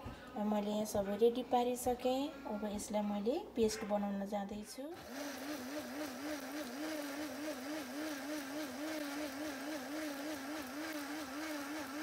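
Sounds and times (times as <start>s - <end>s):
blender motor grinding: 5.0s - 12.0s.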